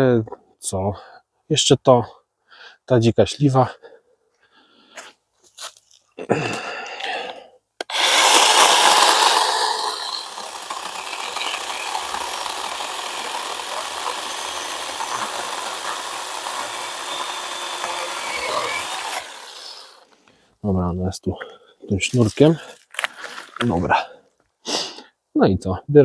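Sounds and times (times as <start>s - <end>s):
power saw cutting branch: 7.8s - 20.1s.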